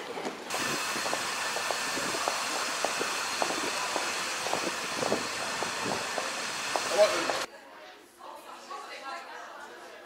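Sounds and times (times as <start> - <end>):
footsteps on pavement: 0.0 - 7.5
distant traffic hiss: 0.5 - 7.5.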